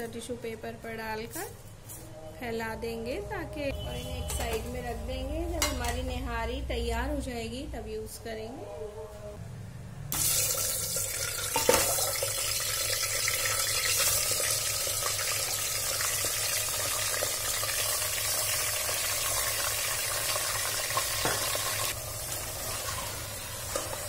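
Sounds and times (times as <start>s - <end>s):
meat sizzling in hot oil: 10.2s - 24.0s.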